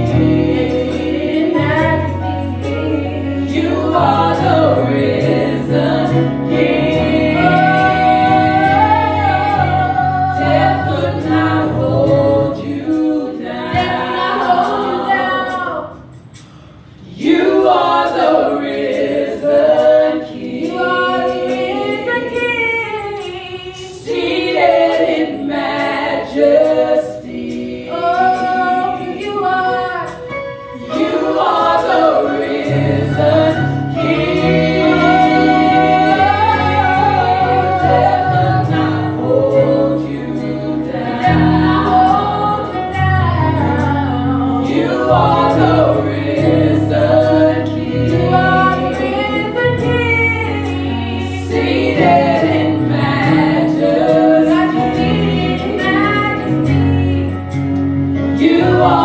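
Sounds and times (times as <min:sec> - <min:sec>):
women singing gospel in harmony: 0:00.0 - 0:16.2, 0:17.0 - 0:59.0.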